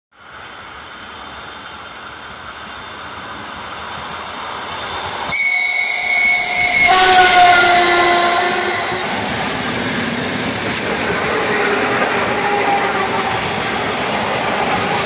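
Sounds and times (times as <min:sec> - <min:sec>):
electric train running: 0:00.4 - 0:15.0
loud two-tone train horn: 0:05.3 - 0:09.2, 0:11.3 - 0:13.7.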